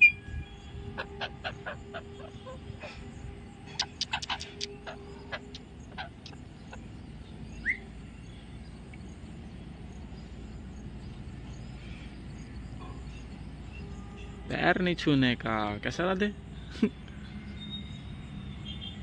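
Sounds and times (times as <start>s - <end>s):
parakeet chirp: 0.0s - 3.0s, 3.7s - 8.4s.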